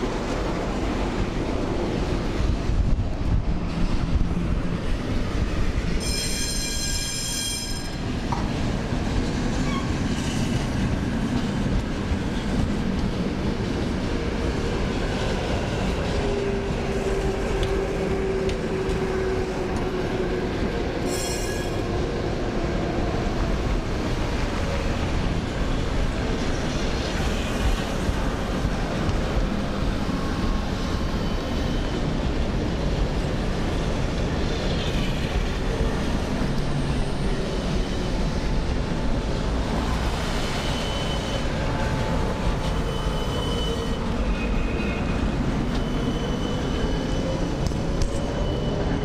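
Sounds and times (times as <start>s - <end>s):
tram wheels rumbling: 0.0s - 49.0s
high-pitched wheel squeal: 6.0s - 8.0s, 9.6s - 10.6s, 21.0s - 21.8s, 40.4s - 41.5s, 42.6s - 49.0s.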